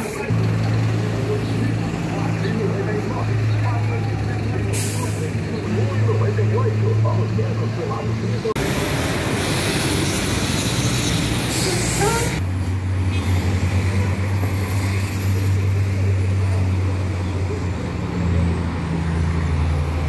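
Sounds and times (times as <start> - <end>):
large vehicle engine idling: 0.0 - 9.5.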